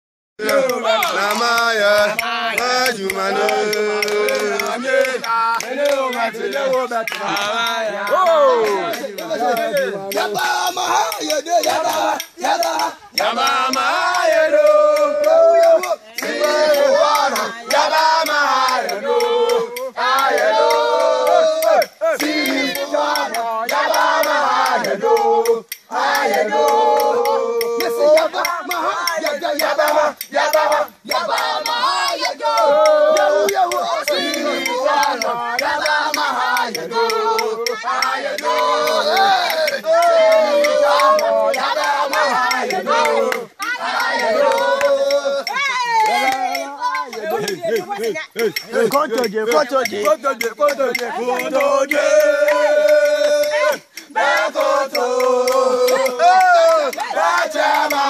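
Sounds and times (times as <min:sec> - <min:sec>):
steady sharp beat: 0:00.4 - 0:58.0
voices singing a chant: 0:00.4 - 0:58.0.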